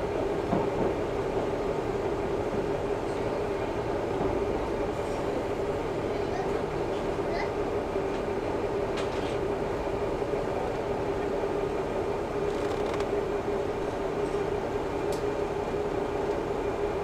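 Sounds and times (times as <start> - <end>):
railcar engine drone: 0.0 - 17.0
wheel and track noise: 8.0 - 16.6.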